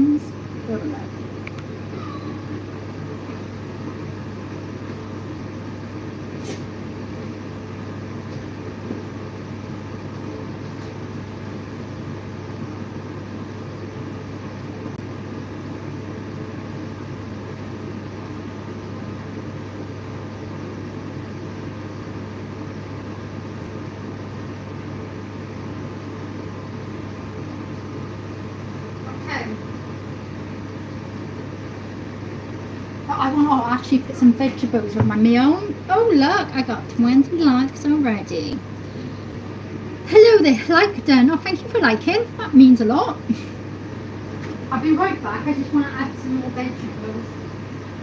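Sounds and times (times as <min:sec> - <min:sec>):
machine hum with hiss: 0:00.0 - 0:48.0.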